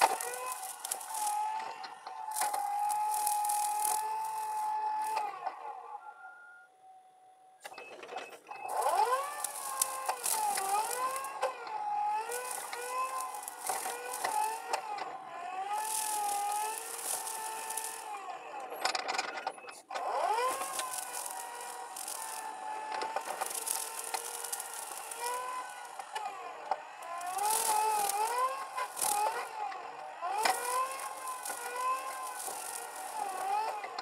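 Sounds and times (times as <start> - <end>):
brush mower whining: 0.0 - 6.2, 7.6 - 34.0.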